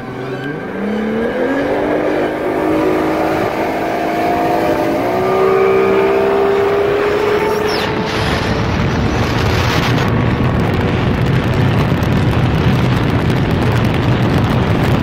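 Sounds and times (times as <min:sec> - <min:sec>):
boat engine rumble: 0:00.0 - 0:15.0
wind buffeting microphone: 0:00.0 - 0:15.0.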